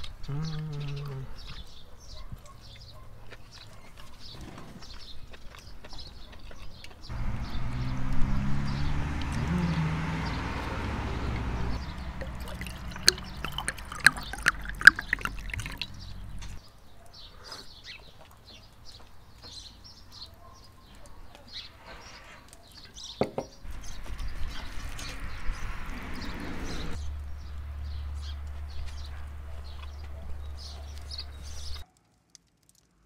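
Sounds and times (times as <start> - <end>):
wine glugging into a glass: 12.1 - 16.6.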